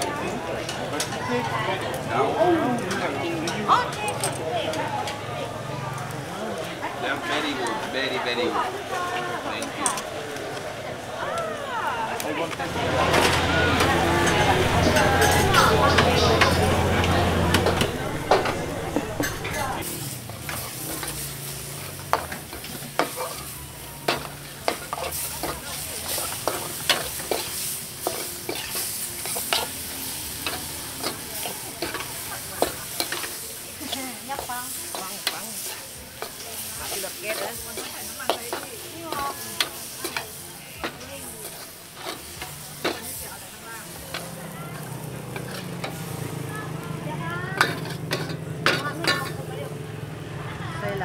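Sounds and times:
food sizzling in a pan: 5.0 - 50.2.

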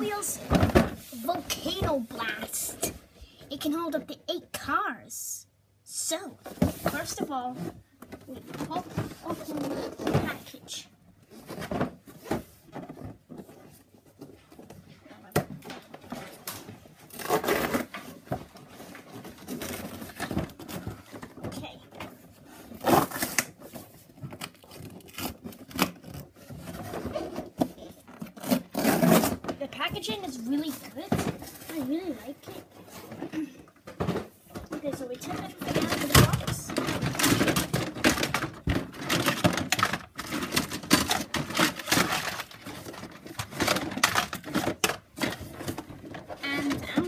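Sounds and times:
cardboard box rustling and scraping: 17.1 - 33.4
plastic pieces clattering: 33.0 - 47.0.

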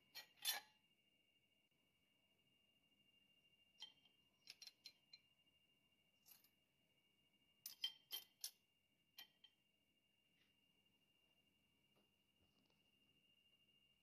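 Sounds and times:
faint steady high whine: 0.0 - 14.0
light metallic clicks and clinks: 7.6 - 8.6.

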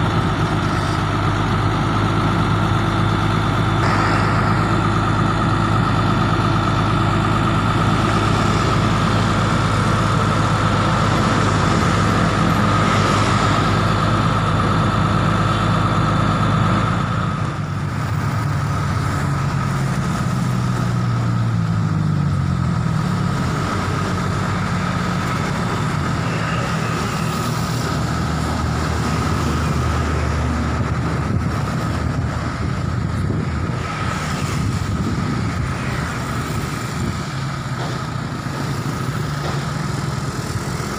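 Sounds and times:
thin steady whine: 0.0 - 20.0
diesel truck engine running: 0.0 - 40.9.

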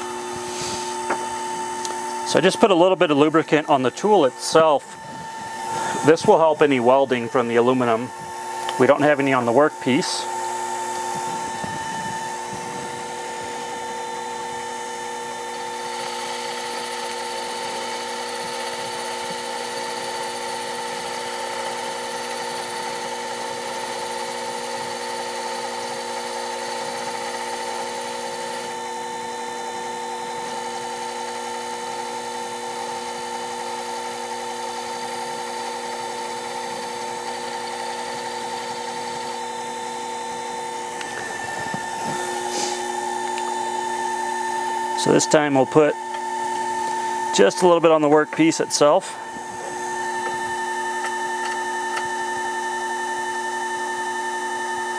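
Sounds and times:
lathe motor whine: 0.0 - 54.9
higher hiss of cutting: 0.4 - 1.1, 42.3 - 43.0.

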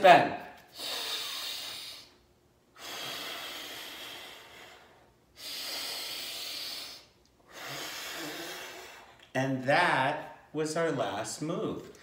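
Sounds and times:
deep breathing through nose: 0.7 - 9.2.

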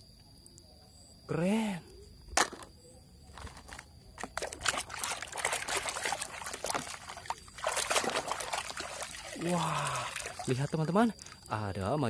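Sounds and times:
water sloshing in a plastic bucket: 3.4 - 11.5.

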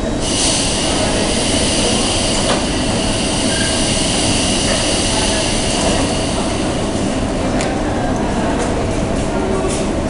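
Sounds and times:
steady high hiss: 0.2 - 8.0
low hum: 0.2 - 8.4.

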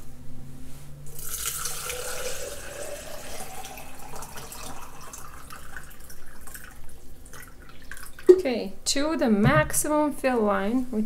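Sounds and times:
water pouring into plastic cylinder: 1.2 - 8.3.

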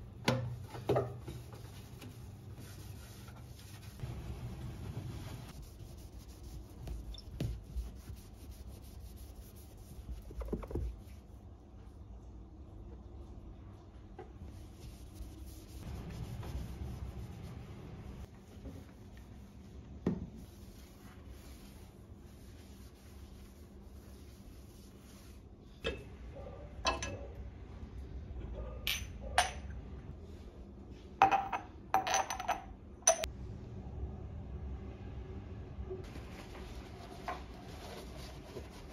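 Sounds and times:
cloth wiping hard surfaces: 1.1 - 11.4, 14.5 - 19.8, 20.4 - 25.5, 36.0 - 38.9
glass jars clinking: 31.2 - 33.3.

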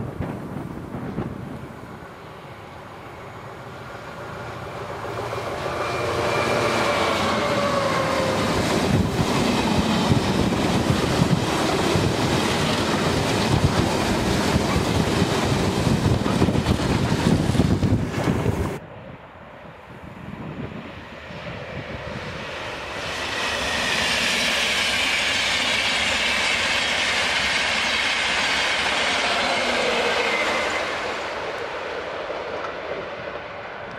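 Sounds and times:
diesel locomotive passing: 0.0 - 33.9.

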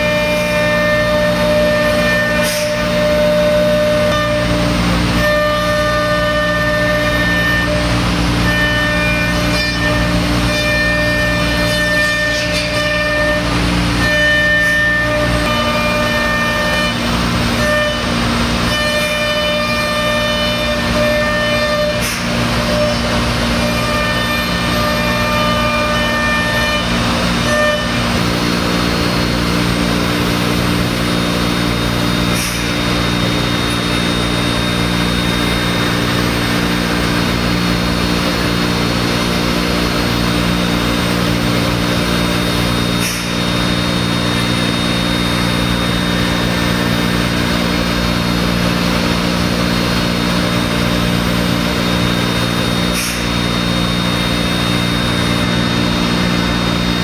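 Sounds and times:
router spindle milling wood: 0.0 - 57.0.

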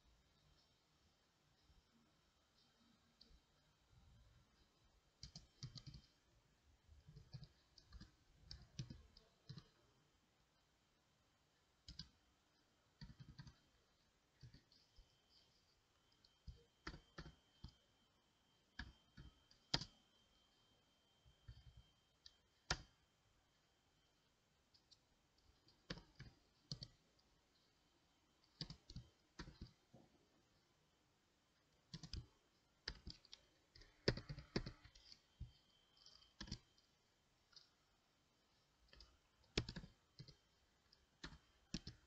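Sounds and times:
computer keyboard typing: 5.2 - 6.2, 7.0 - 9.8, 11.8 - 12.2, 13.0 - 17.9, 18.7 - 20.2, 21.4 - 23.0, 24.7 - 27.7, 28.4 - 30.0, 31.8 - 37.8, 38.8 - 42.0.

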